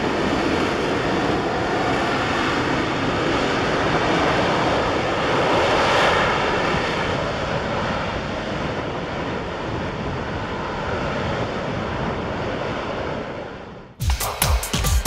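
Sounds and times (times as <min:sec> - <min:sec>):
wind buffeting microphone: 0:00.0 - 0:13.9
jet engine roar: 0:00.0 - 0:14.0
electronic dance music: 0:14.0 - 0:15.0.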